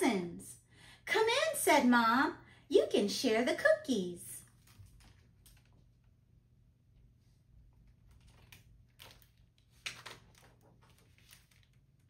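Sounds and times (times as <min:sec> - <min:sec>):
page turning: 0:04.5 - 0:05.9, 0:07.7 - 0:12.0
book handling clicks and rustles: 0:04.5 - 0:06.2, 0:07.7 - 0:12.0.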